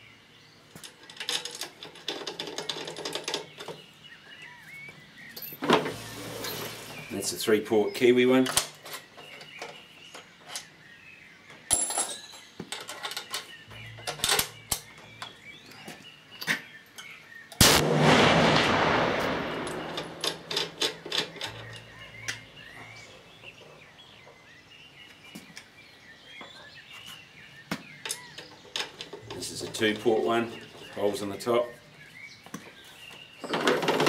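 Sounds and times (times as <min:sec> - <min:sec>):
rifle handling clicks and knocks: 0:08.4 - 0:10.7, 0:19.7 - 0:22.4
rifle shot with long echo: 0:17.6 - 0:22.7.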